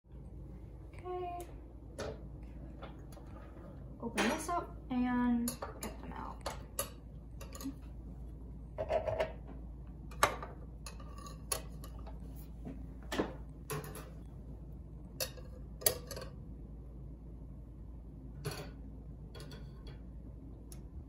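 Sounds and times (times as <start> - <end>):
metal spatula clicking and scraping: 5.5 - 7.8, 10.8 - 12.2.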